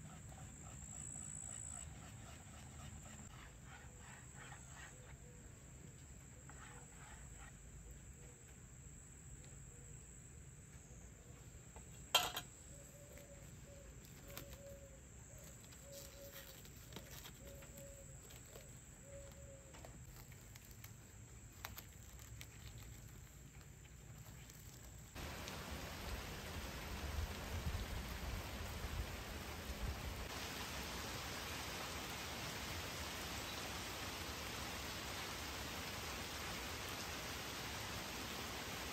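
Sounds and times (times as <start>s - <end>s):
steady rain: 25.2s - 38.9s.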